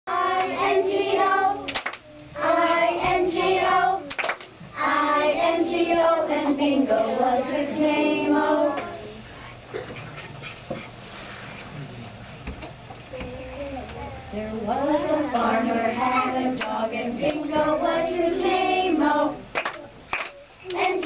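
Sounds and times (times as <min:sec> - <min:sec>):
children singing: 0:00.1 - 0:01.7, 0:02.4 - 0:04.1, 0:04.8 - 0:09.0, 0:14.3 - 0:19.6
sharp claps: 0:01.7 - 0:02.0, 0:04.1 - 0:04.5, 0:19.5 - 0:21.0.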